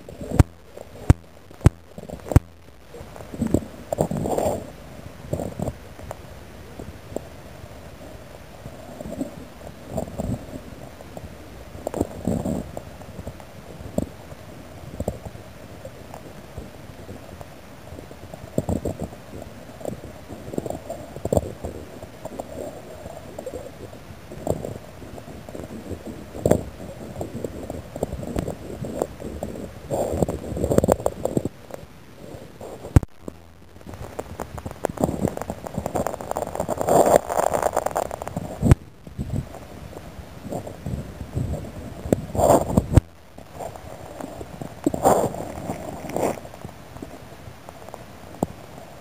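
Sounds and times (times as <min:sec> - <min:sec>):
low rumbles: 0:00.0 - 0:15.4, 0:24.2 - 0:47.1
steady hiss: 0:00.0 - 0:49.0.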